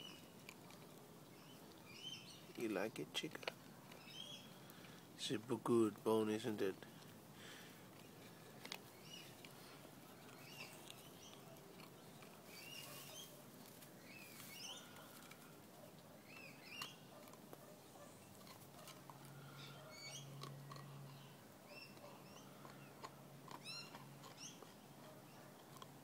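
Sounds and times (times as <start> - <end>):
puppy gnawing on bone: 0.0 - 5.2, 6.8 - 26.0
birds chirping: 0.0 - 5.5, 6.1 - 25.6.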